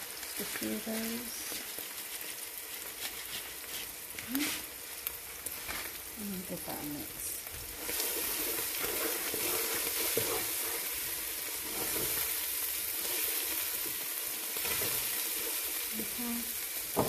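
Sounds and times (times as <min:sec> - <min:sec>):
food sizzling in hot oil: 0:00.0 - 0:17.0
spatula stirring in a pan: 0:00.5 - 0:06.1, 0:07.4 - 0:17.0.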